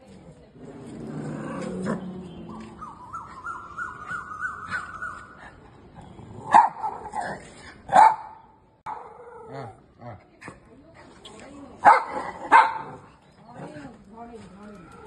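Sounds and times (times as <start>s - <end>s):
dog barking loudly: 6.4s - 7.2s, 7.9s - 9.1s, 11.8s - 13.0s.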